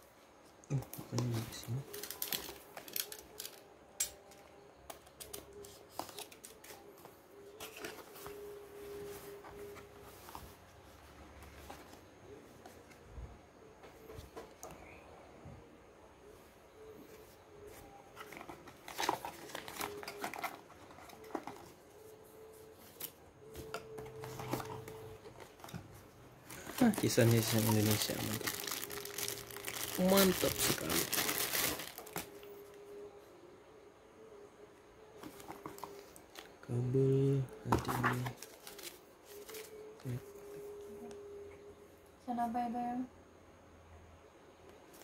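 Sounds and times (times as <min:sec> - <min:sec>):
cardboard packaging rustling: 0:00.9 - 0:03.7, 0:05.2 - 0:13.0, 0:17.7 - 0:32.5, 0:35.2 - 0:36.5, 0:37.6 - 0:40.8.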